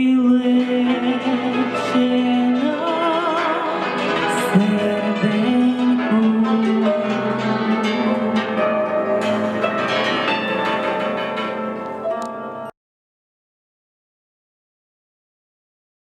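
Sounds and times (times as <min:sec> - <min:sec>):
hammered dulcimers playing: 0:00.2 - 0:12.7.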